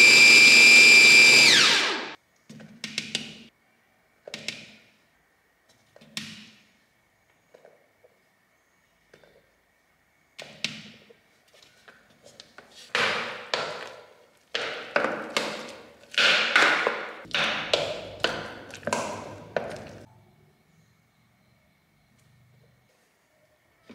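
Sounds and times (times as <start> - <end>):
spatula stirring and scraping paste: 17.3 - 20.1.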